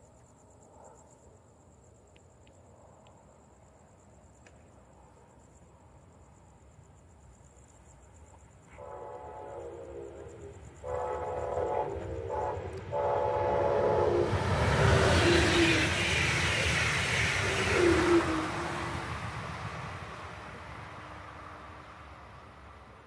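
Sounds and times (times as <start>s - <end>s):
train horn blasts: 8.7s - 16.0s
train rushing past: 8.7s - 23.0s.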